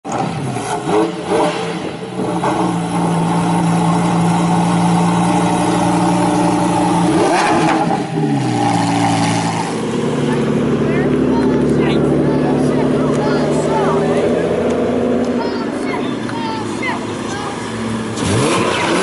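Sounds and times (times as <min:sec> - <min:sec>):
sports car engine idling: 0:00.1 - 0:19.0
engine rev blip: 0:18.1 - 0:19.0.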